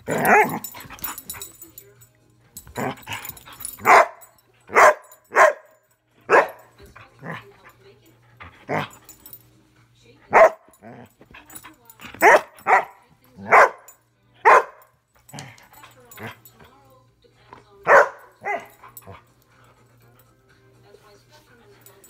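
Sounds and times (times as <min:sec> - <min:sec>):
dog barking: 0:03.8 - 0:06.7, 0:10.3 - 0:11.0, 0:12.2 - 0:14.9, 0:17.8 - 0:19.0.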